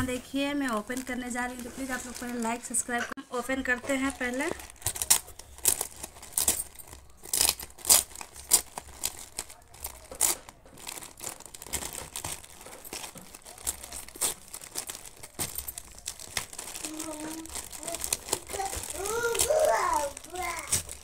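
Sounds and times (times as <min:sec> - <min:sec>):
plastic bag being torn open: 0:04.1 - 0:21.0.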